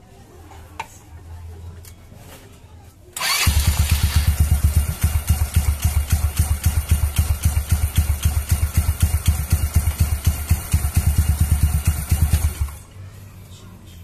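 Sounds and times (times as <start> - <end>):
scooter engine starting and idling: 3.2 - 12.8.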